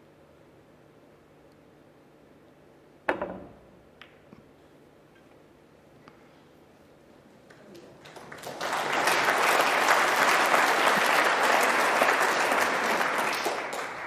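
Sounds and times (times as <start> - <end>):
audience applauding: 7.5 - 14.0.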